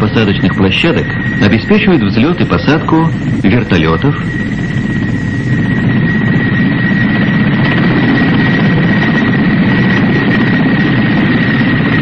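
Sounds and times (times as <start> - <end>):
helicopter flying low: 0.0 - 12.0
high turbine whine: 0.0 - 12.0.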